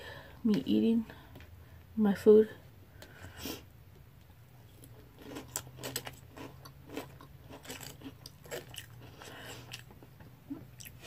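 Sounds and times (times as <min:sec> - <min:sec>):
chewing crunchy cereal: 0:04.6 - 0:11.0.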